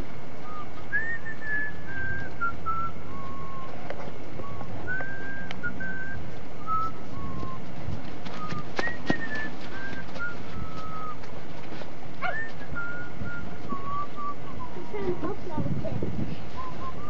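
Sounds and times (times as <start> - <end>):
person whistling a tune: 0.5 - 3.7, 4.4 - 7.6, 8.4 - 11.2, 12.2 - 14.8, 16.6 - 17.0.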